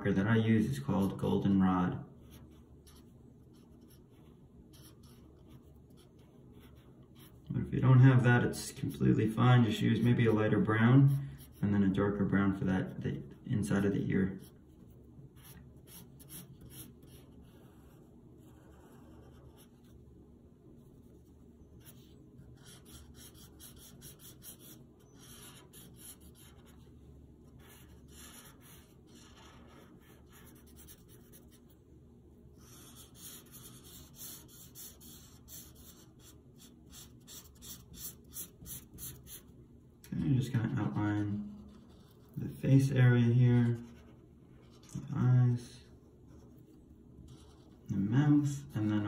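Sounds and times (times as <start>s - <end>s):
marker scratching on paper: 2.2s - 7.5s, 13.8s - 20.0s, 21.0s - 31.8s, 32.6s - 39.5s, 40.8s - 43.0s, 47.2s - 47.9s.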